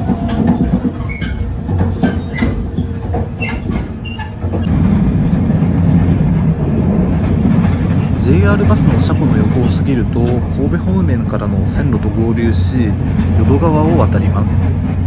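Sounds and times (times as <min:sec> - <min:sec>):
electric train rumbling: 0:00.0 - 0:15.0
wheels clacking over rails: 0:00.0 - 0:15.0.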